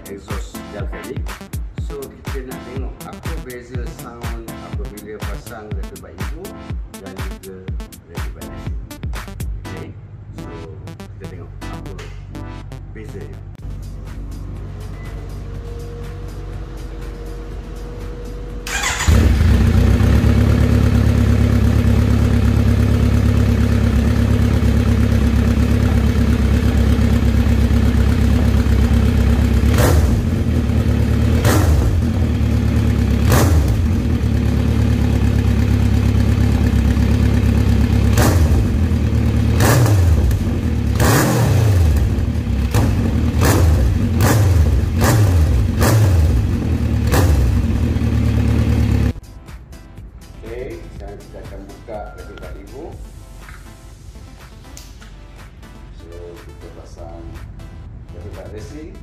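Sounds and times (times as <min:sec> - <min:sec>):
motorcycle engine idling and revving: 0:13.6 - 0:49.2.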